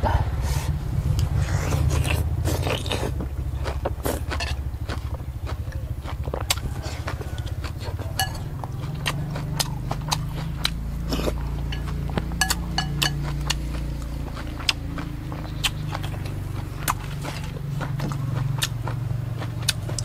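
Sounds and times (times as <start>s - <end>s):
steady low hum: 0.0s - 20.0s
mouth chewing with lip smacks: 1.2s - 20.0s.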